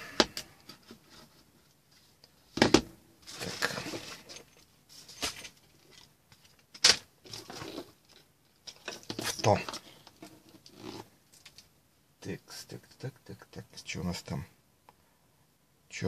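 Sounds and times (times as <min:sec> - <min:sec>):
test leads scraping and rustling: 0:03.2 - 0:06.6.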